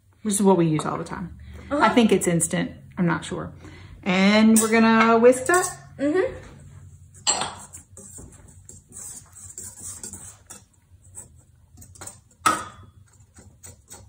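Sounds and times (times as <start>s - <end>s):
whisk scratching in metal bowl: 7.1s - 14.0s.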